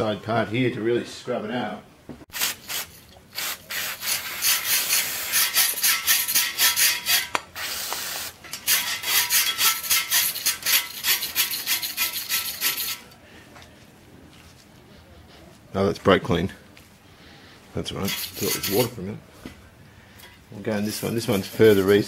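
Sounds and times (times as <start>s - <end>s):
short steady hiss: 2.3s - 5.5s, 7.3s - 8.4s
brush scrubbing on metal: 2.4s - 13.1s, 18.0s - 19.0s, 20.7s - 22.0s.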